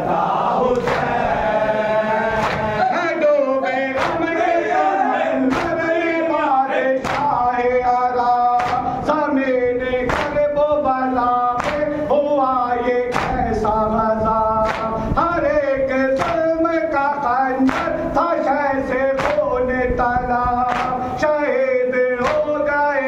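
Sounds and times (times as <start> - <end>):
man singing over microphone: 0.0 - 23.0
men chanting: 0.0 - 23.0
hands slapping chests: 0.8 - 1.1, 2.4 - 2.8, 4.0 - 4.3, 5.5 - 5.8, 7.0 - 7.4, 8.6 - 8.9, 10.1 - 10.4, 11.6 - 11.9, 13.1 - 13.4, 14.6 - 14.9, 16.2 - 16.4, 19.2 - 19.4, 20.7 - 21.0, 22.2 - 22.5.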